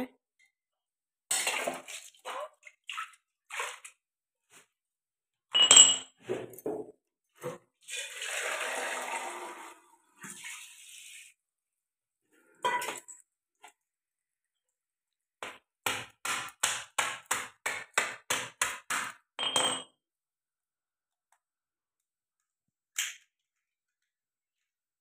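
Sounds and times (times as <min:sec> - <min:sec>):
water pouring and splashing: 0:01.3 - 0:04.0, 0:07.8 - 0:11.4
pestle pounding crab shell: 0:15.4 - 0:19.2.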